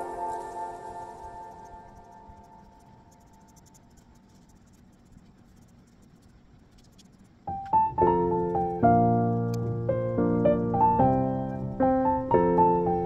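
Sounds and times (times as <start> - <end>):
piano music: 0.0 - 3.2, 7.5 - 13.0.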